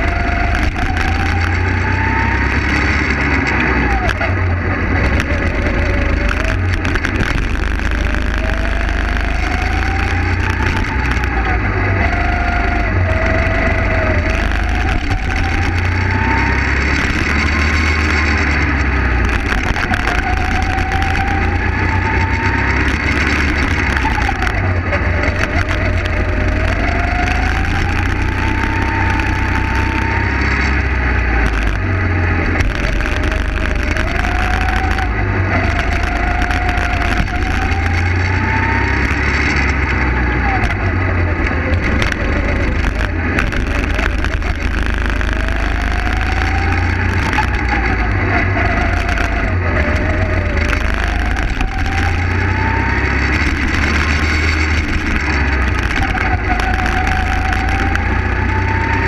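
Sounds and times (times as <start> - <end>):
go-kart engine revving: 0.0 - 59.0.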